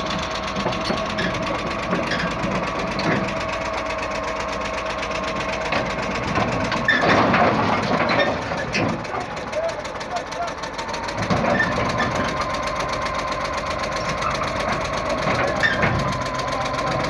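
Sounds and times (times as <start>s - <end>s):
bulldozer diesel engine whining: 0.0s - 17.0s.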